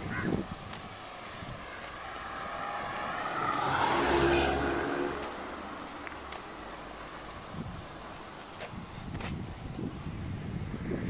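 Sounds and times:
car driving past: 0:02.0 - 0:07.3.

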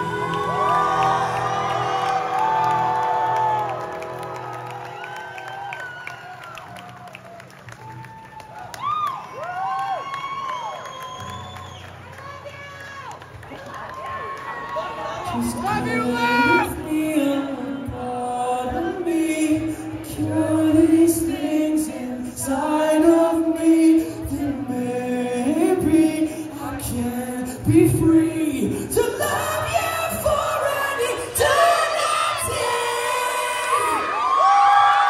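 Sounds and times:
crowd cheering and screaming: 0:00.0 - 0:17.0, 0:29.3 - 0:35.0
person singing slow melody: 0:15.2 - 0:34.9.

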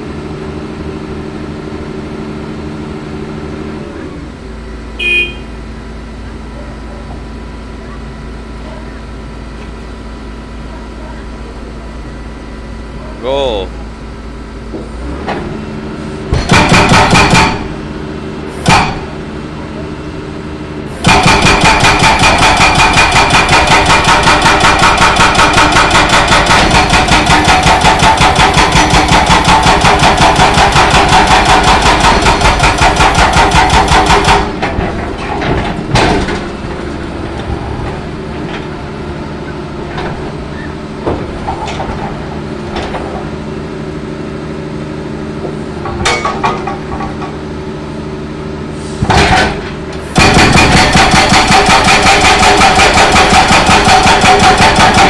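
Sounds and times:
excavator engine running: 0:00.0 - 0:55.0
hydraulic breaker hammering concrete: 0:16.3 - 0:17.9, 0:18.6 - 0:19.2, 0:21.0 - 0:36.9, 0:45.4 - 0:47.5, 0:49.0 - 0:55.0.

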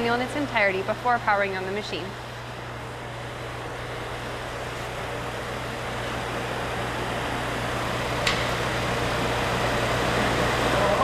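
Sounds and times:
motor and impeller humming: 0:00.0 - 0:11.0.

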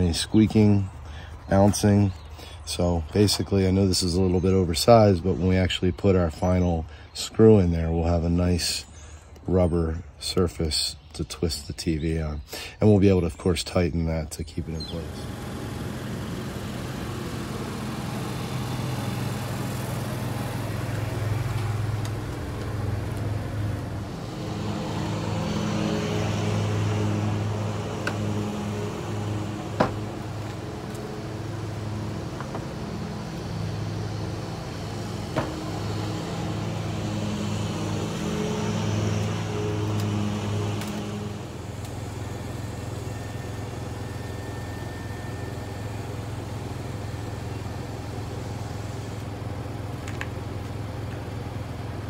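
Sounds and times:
engine idling: 0:14.6 - 0:52.0.

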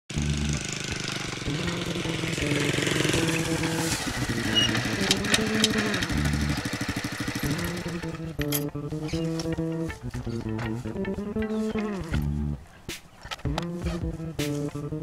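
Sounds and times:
small motorcycle engine running: 0:00.1 - 0:10.7
background music: 0:00.1 - 0:15.0.

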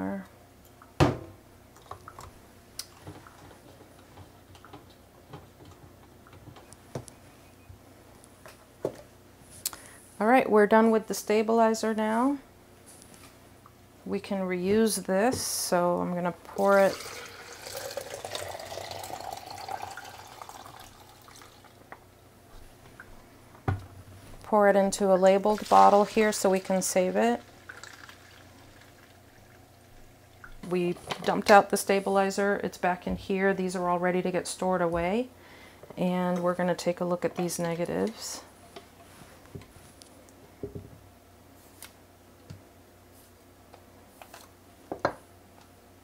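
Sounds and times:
liquid dripping: 0:16.6 - 0:21.8, 0:25.5 - 0:30.7
liquid pouring into plastic jug: 0:16.6 - 0:21.8, 0:25.5 - 0:30.6.

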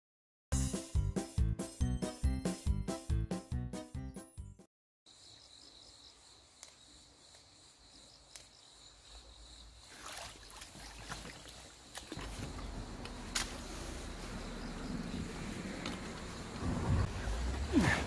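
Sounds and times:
insects chirring: 0:05.1 - 0:18.0
rustling and splashing in water: 0:09.8 - 0:14.7.

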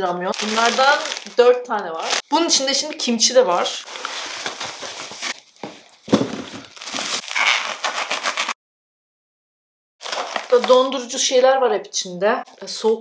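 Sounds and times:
plastic packaging crinkling: 0:00.3 - 0:02.6, 0:03.5 - 0:08.6, 0:10.0 - 0:11.1
package thump: 0:05.6 - 0:07.6.

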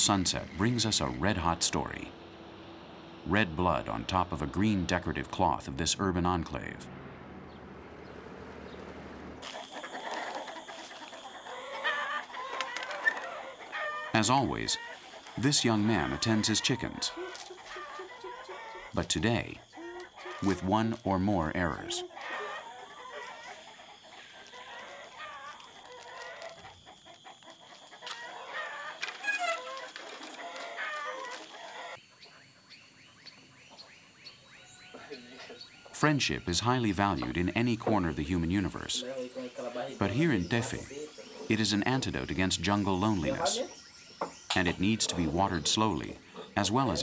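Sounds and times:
low steady hum: 0:00.0 - 0:09.9
chickens clucking: 0:00.0 - 0:32.4, 0:34.8 - 0:47.0.

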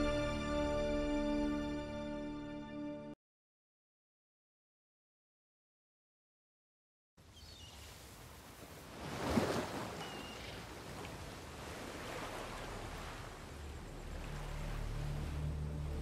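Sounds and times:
low steady music tone: 0:00.0 - 0:03.2, 0:12.2 - 0:16.0
sea waves washing on beach: 0:07.6 - 0:16.0.

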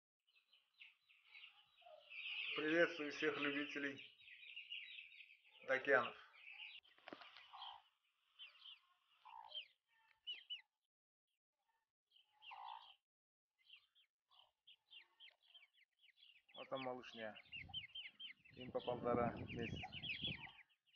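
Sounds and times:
chicks peeping: 0:00.8 - 0:10.6, 0:12.4 - 0:13.0, 0:14.3 - 0:20.7.

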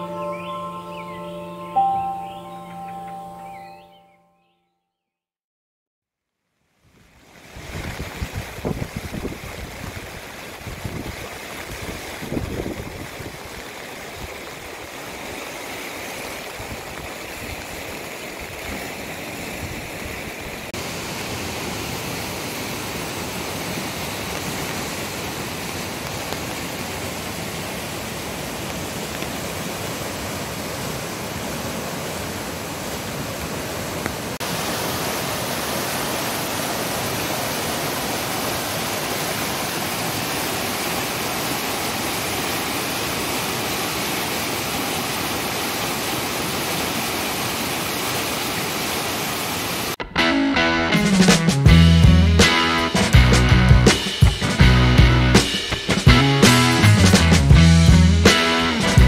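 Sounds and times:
river rushing over rocks: 0:07.3 - 0:50.0.

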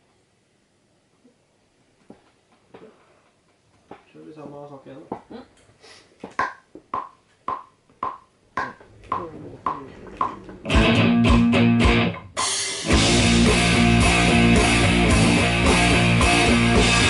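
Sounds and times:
rock music with drums and guitar: 0:10.7 - 0:17.0.

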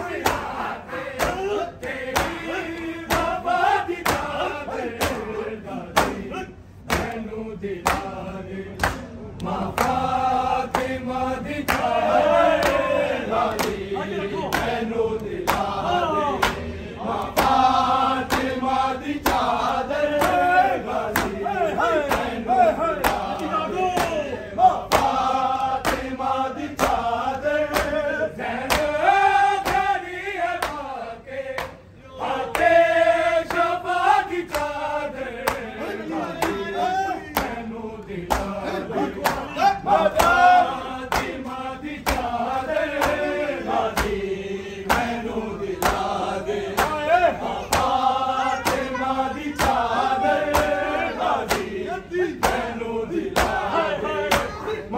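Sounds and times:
men chanting lament: 0:00.0 - 0:54.9
hands slapping chests: 0:00.2 - 0:03.4, 0:04.0 - 0:04.4, 0:06.8 - 0:07.2, 0:07.8 - 0:08.2, 0:14.4 - 0:15.8, 0:18.2 - 0:18.6, 0:21.1 - 0:21.4, 0:26.8 - 0:27.1, 0:27.7 - 0:28.0, 0:28.6 - 0:28.9, 0:35.5 - 0:35.7, 0:37.3 - 0:37.6, 0:38.3 - 0:38.6, 0:41.1 - 0:44.2, 0:44.9 - 0:45.2, 0:45.8 - 0:46.1, 0:46.7 - 0:47.0, 0:47.7 - 0:48.0, 0:49.6 - 0:50.8, 0:52.4 - 0:52.7, 0:53.4 - 0:53.6, 0:54.3 - 0:54.6.

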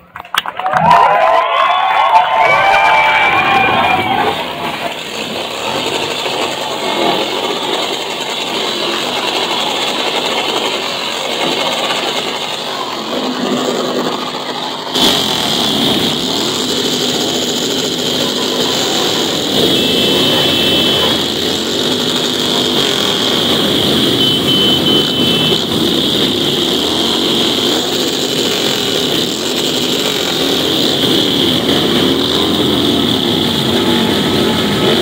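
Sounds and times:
voices: 0:00.0 - 0:35.0
vehicle engines revving: 0:02.3 - 0:35.0.

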